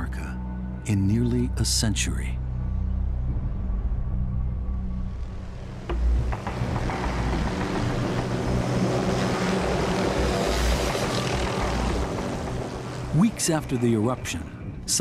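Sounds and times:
helicopter rotor and engine: 6.3s - 15.0s.

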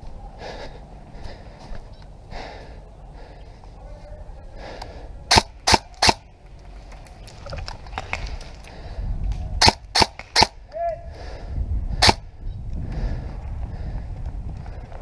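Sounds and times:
breathy puffs of breathing: 0.3s - 3.8s, 4.4s - 5.6s, 8.4s - 9.3s, 11.0s - 15.0s
airsoft rifle shots: 5.3s - 6.3s, 9.6s - 10.6s, 12.0s - 12.2s.

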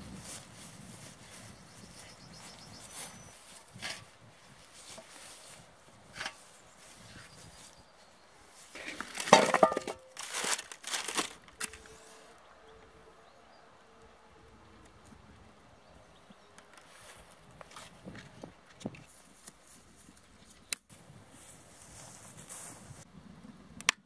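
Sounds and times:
wooden logs clattering on metal: 8.8s - 11.8s.

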